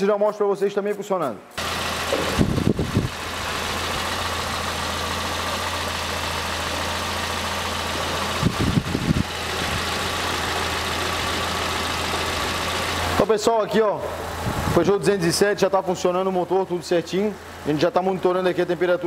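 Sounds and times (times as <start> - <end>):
car engine idling: 1.6 - 14.8
short low rumbles: 1.9 - 3.3.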